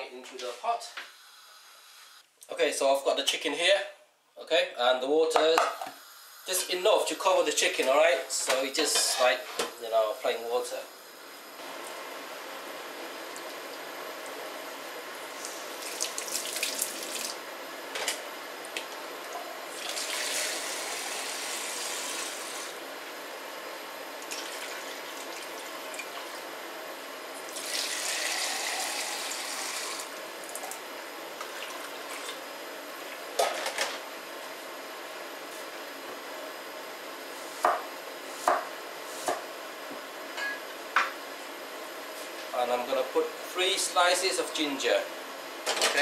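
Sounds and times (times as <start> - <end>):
water pouring: 15.8 - 17.4, 19.7 - 22.1.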